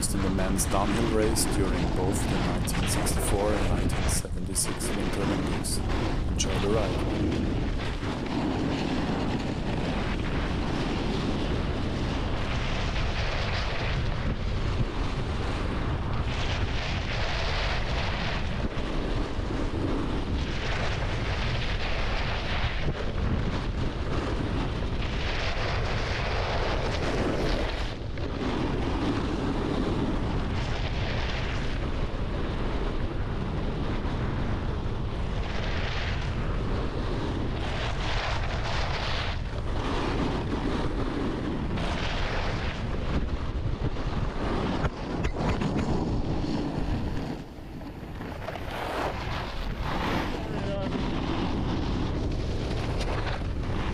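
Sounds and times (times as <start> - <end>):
snowboard scraping over snow: 0.0 - 13.8, 25.5 - 30.5, 35.4 - 53.9
wind buffeting microphone: 0.0 - 53.9.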